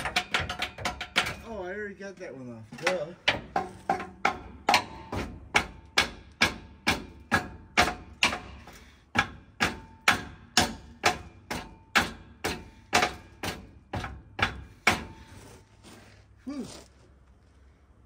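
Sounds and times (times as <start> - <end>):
hammer striking metal: 2.8 - 15.2.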